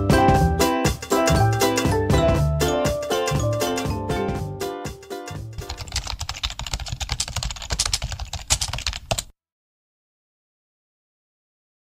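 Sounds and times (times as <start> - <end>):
keyboard typing: 5.6 - 9.3.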